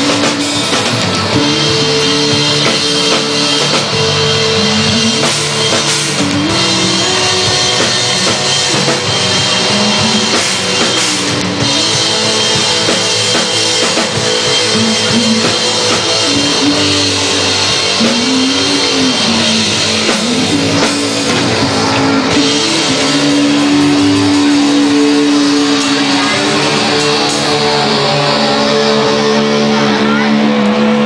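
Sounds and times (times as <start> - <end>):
drum kit: 0.0 - 31.0
electric guitars: 0.0 - 31.0
person singing into microphone: 14.6 - 31.0.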